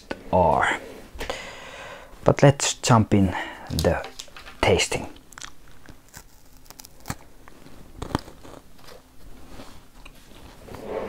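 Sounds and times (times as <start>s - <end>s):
crunching wafer chewing: 5.2s - 10.5s.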